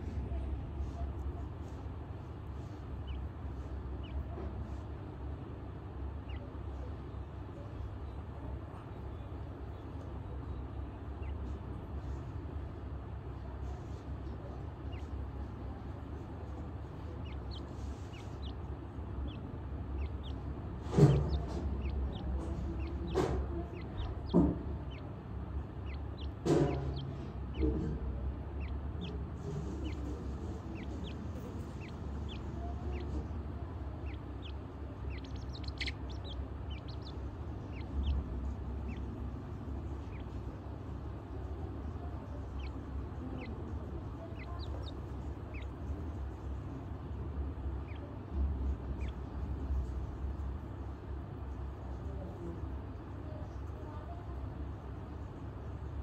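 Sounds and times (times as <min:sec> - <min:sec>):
chicks peeping: 0:00.0 - 0:56.0
steady low hum: 0:00.0 - 0:56.0
steady low rumble: 0:00.0 - 0:56.0
bird clucking calls: 0:02.6 - 0:04.9, 0:14.4 - 0:50.0.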